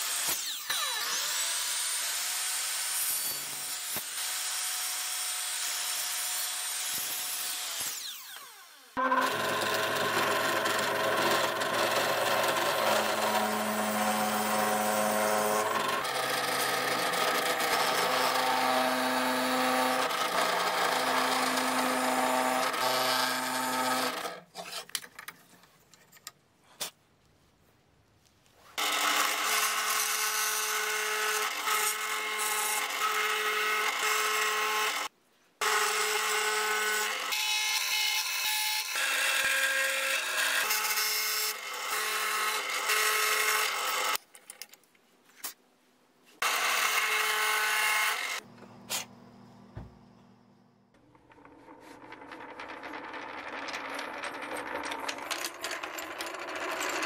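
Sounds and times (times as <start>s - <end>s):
drill motor hum: 9.0s - 24.3s
drill bit boring into wood: 9.0s - 24.4s.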